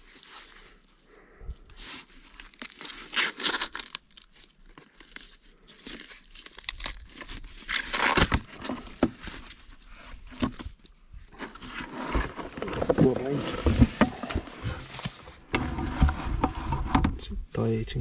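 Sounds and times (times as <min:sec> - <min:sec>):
corn husks tearing: 0:01.7 - 0:15.2.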